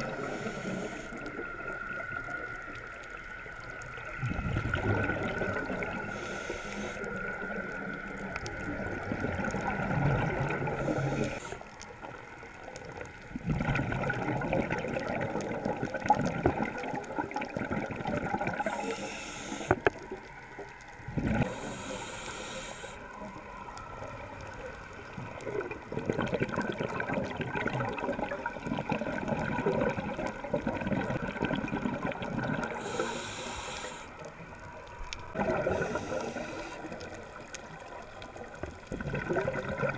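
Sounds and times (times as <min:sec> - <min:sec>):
regulator hissing inhalations: 0:00.0 - 0:01.4, 0:06.0 - 0:07.2, 0:10.8 - 0:11.7, 0:18.6 - 0:19.9, 0:21.4 - 0:23.3, 0:32.7 - 0:34.3, 0:35.6 - 0:37.2
exhaled bubbles gurgling: 0:00.0 - 0:39.9
faint steady tone: 0:05.3 - 0:09.6.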